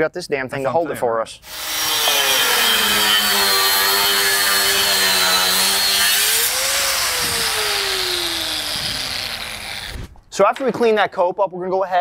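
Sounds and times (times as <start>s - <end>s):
angle grinder cutting metal pipe: 1.4s - 10.1s.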